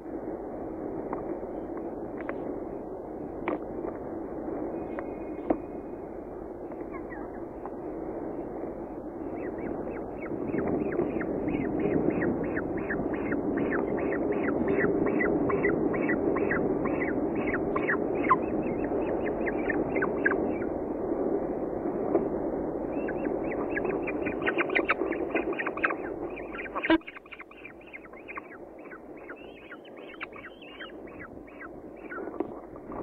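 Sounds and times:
steady low rumble: 0.0s - 33.0s
falcon chick begging calls: 9.3s - 20.7s, 23.0s - 33.0s.

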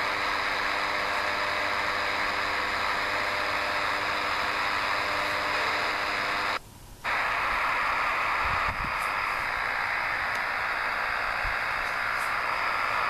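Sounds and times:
buzzing hum of stacked tones: 0.0s - 13.0s
faint whine: 0.0s - 13.0s
radio static hiss: 0.0s - 13.0s.

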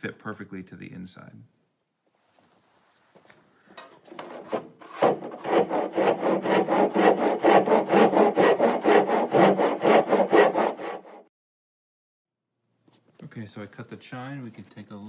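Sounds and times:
handsaw cutting wood: 4.1s - 11.3s.

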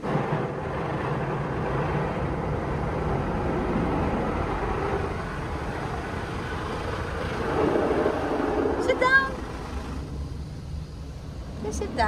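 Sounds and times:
car wash equipment rushing: 0.0s - 10.3s.

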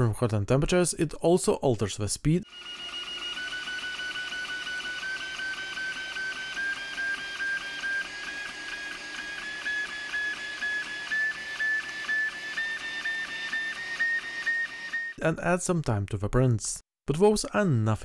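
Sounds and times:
stepper motors whining: 2.5s - 15.2s.

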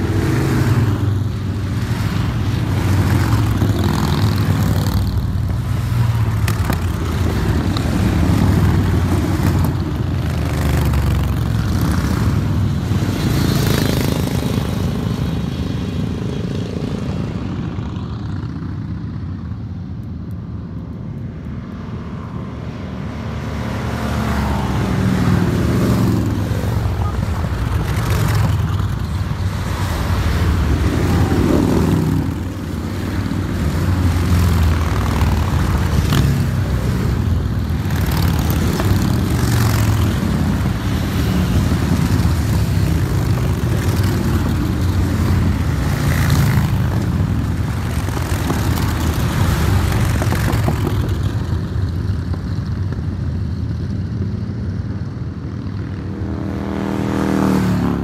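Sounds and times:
motorcycles riding past: 0.0s - 19.9s, 20.7s - 58.0s.

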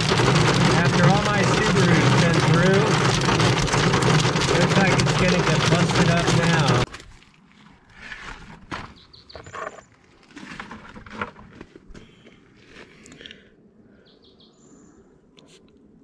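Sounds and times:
grit clicking: 0.0s - 7.0s.

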